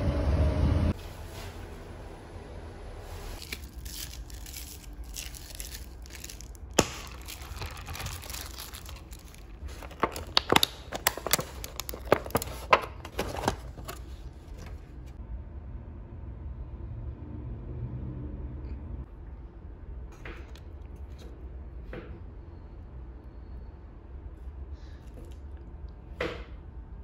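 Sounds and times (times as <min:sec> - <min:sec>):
plastic packaging crinkling: 0:03.3 - 0:14.8
sharp plastic clicks and crackles: 0:03.5 - 0:13.8.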